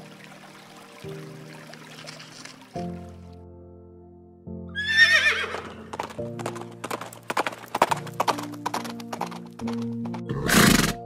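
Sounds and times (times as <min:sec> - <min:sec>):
background music: 0:00.0 - 0:11.0
hooves clip-clopping: 0:02.0 - 0:02.7, 0:05.4 - 0:11.0
horse whinnying: 0:04.7 - 0:06.1, 0:10.3 - 0:11.0.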